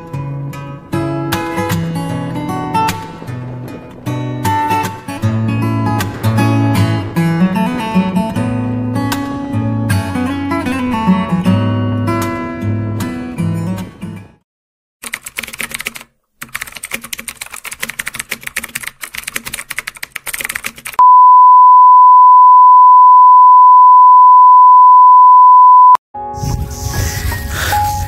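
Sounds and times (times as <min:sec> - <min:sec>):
rapid clicking: 0:15.0 - 0:21.0
electronic beep tone: 0:21.0 - 0:26.0.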